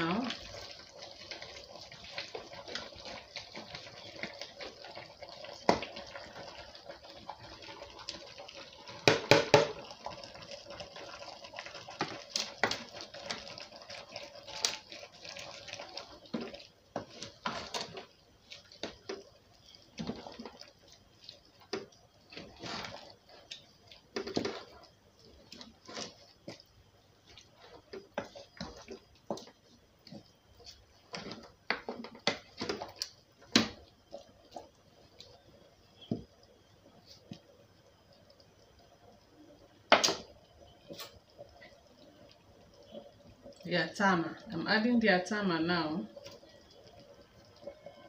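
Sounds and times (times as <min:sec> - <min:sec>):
soup simmering hiss: 0:00.0 - 0:48.0
wooden spoon knocking on pot: 0:09.0 - 0:09.9.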